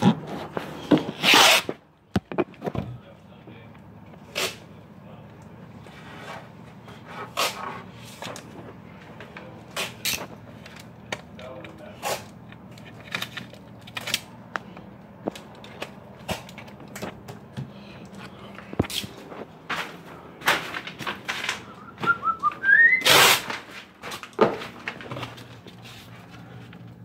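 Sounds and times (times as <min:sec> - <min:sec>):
objects being handled and bumped: 0:00.0 - 0:03.1, 0:05.8 - 0:22.3, 0:23.4 - 0:27.0.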